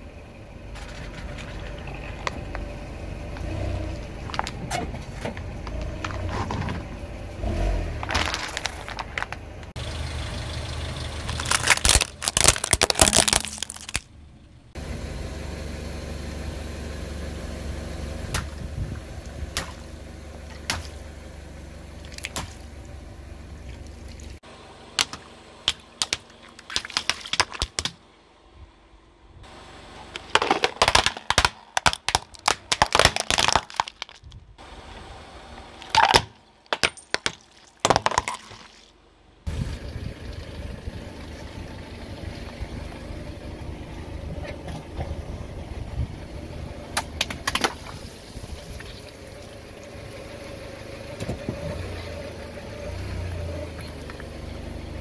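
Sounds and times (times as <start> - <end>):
car engine running low: 0.0 - 27.1, 28.0 - 37.2, 37.9 - 55.0
plastic toys breaking: 8.0 - 9.4, 11.2 - 14.1, 25.0 - 28.0, 30.2 - 34.4, 35.8 - 38.9
tyre crushing objects: 8.0 - 9.4, 11.2 - 14.0, 30.2 - 34.3
plastic bottle crackling: 11.2 - 14.1, 30.3 - 34.3
water beads popping: 11.2 - 14.1.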